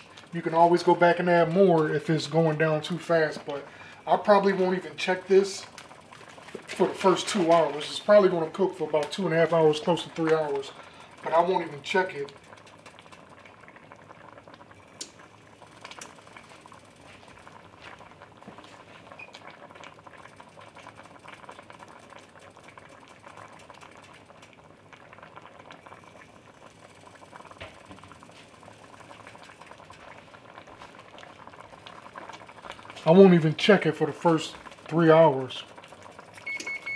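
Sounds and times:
liquid simmering with small pops: 0.0 - 36.9.

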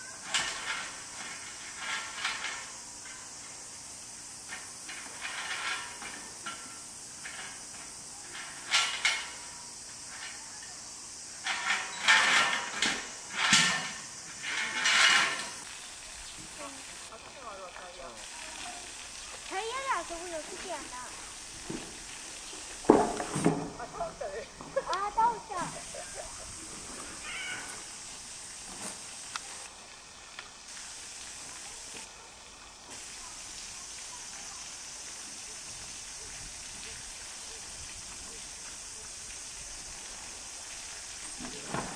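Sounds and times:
steady high-pitched hiss: 0.0 - 41.9
chain rattling over steel bar: 0.2 - 3.6, 4.5 - 10.6, 11.4 - 15.6.

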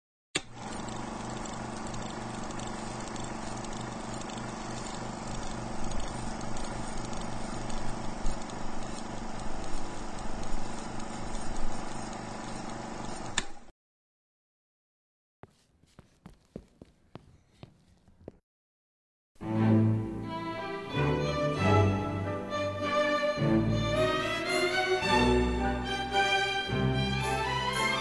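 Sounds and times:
click: 0.4 - 0.6, 12.7 - 13.6.

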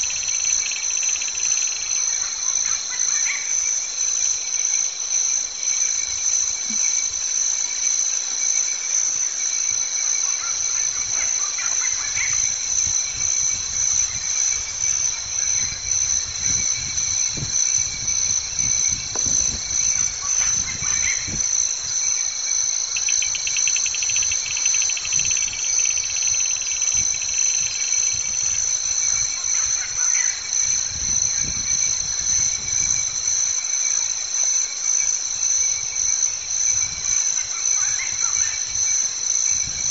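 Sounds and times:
rapid insect trill: 0.0 - 39.9
shrill insect chorus: 0.0 - 39.9
faint low rumbles: 12.0 - 22.4.

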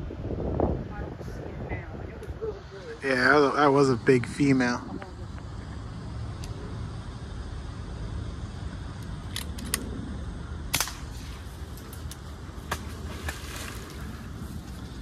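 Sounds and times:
low background rumble: 0.0 - 15.0
air rifle crack: 10.6 - 13.4.

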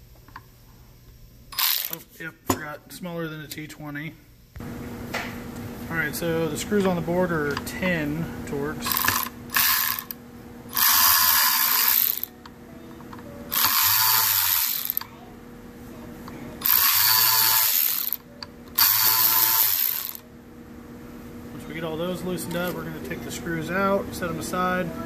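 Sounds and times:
electric ratchet running: 1.5 - 2.0, 8.8 - 12.3, 13.5 - 15.1, 16.6 - 20.2.

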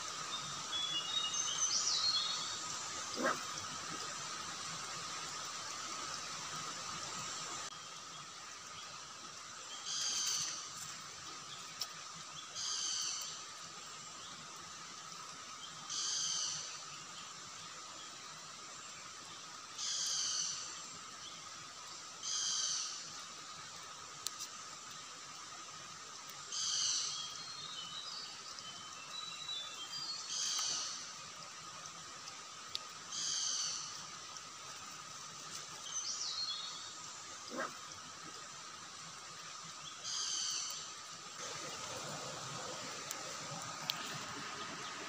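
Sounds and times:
running stream water: 0.0 - 45.0
animal calling: 3.1 - 3.5, 37.5 - 37.8.

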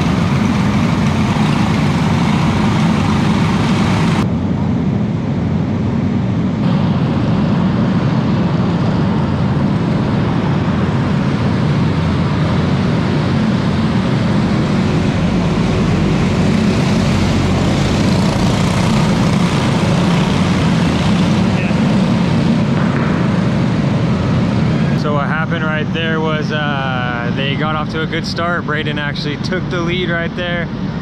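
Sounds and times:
kart engines droning: 0.0 - 4.2, 11.3 - 30.3.

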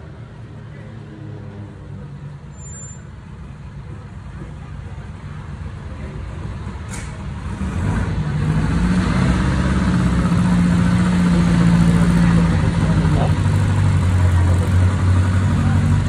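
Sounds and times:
car engine idling: 9.9 - 16.0.

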